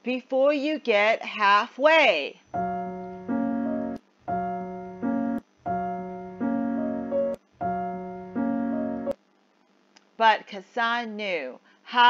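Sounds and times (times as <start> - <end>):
keyboard playing held chords: 2.6 - 9.2.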